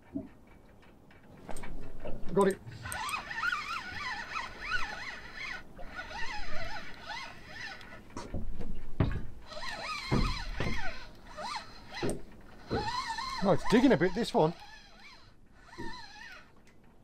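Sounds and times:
fishing reel squeaky whine: 0:02.4 - 0:08.1, 0:09.4 - 0:16.6
dull thumps: 0:08.2 - 0:13.7.

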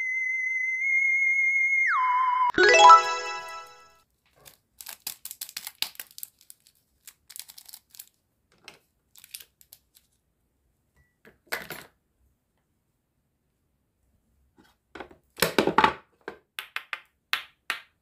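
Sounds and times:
cellophane wrappers crinkling: 0:04.2 - 0:08.2, 0:09.1 - 0:10.2.

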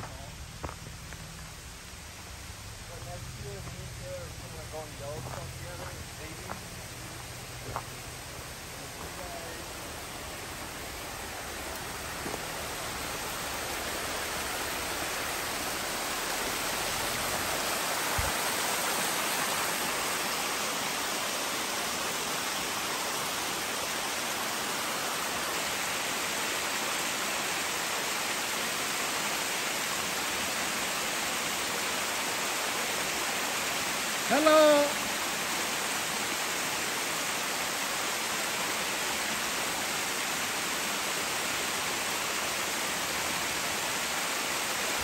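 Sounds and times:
creek water rushing: 0:00.0 - 0:45.0.

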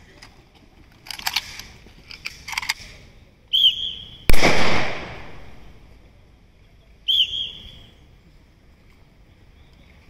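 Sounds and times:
shrill whistle blast: 0:03.5 - 0:04.3, 0:07.1 - 0:07.9
rifle shot with echo: 0:04.3 - 0:05.8.

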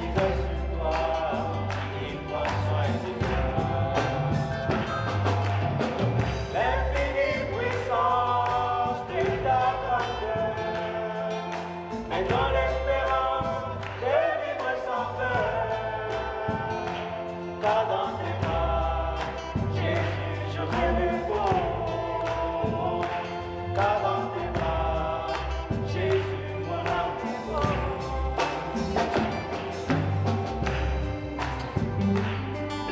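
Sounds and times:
deep bass notes: 0:00.0 - 0:32.9
drums: 0:00.0 - 0:32.9
electric guitar: 0:00.0 - 0:32.9
man singing: 0:00.0 - 0:32.9.

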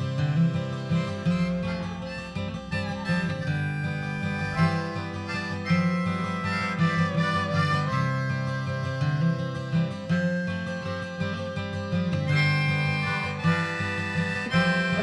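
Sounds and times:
background music with held notes: 0:00.0 - 0:15.0.

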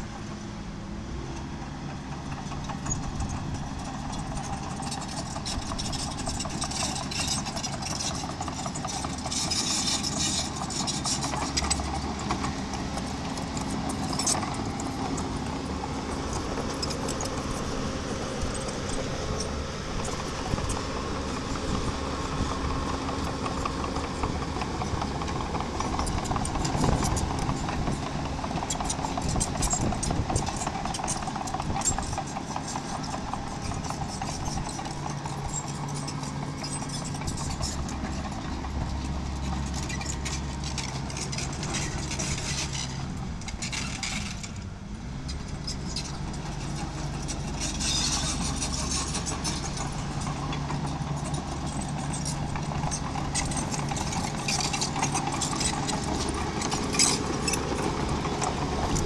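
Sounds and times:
small engine running: 0:01.2 - 0:59.0
tracks clanking on stone: 0:45.7 - 0:59.0.

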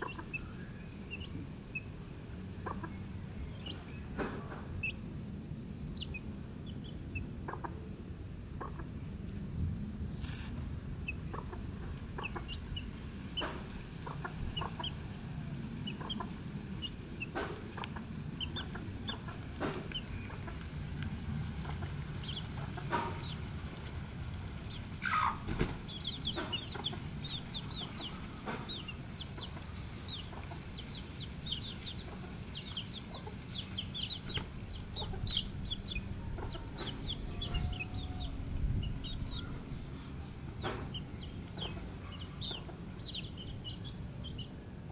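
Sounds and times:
hen clucking: 0:00.0 - 0:00.5, 0:02.6 - 0:03.0, 0:06.9 - 0:07.8, 0:08.6 - 0:09.0, 0:11.0 - 0:15.1, 0:15.8 - 0:20.7, 0:21.6 - 0:23.5, 0:24.8 - 0:39.7, 0:40.6 - 0:44.5
chicks peeping: 0:00.0 - 0:05.1, 0:05.9 - 0:07.8, 0:08.5 - 0:09.1, 0:10.2 - 0:23.9, 0:24.5 - 0:44.8
low steady rumble: 0:00.0 - 0:44.9.

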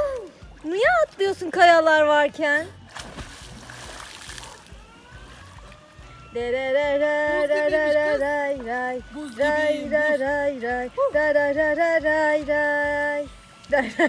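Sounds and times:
person singing unaccompanied: 0:05.9 - 0:14.0.

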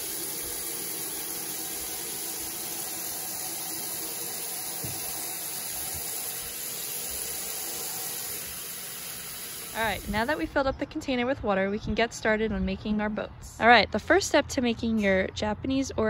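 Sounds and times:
faucet water filling container: 0:00.0 - 0:10.5.

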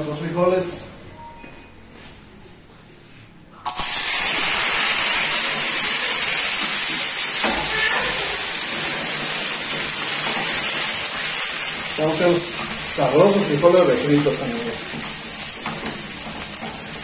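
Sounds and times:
beans sizzling in hot oil: 0:03.7 - 0:17.0.

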